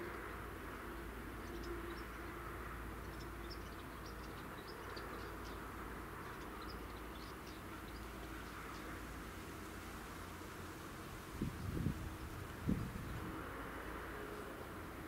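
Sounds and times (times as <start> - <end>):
small birds chirping: 0.8 - 9.2.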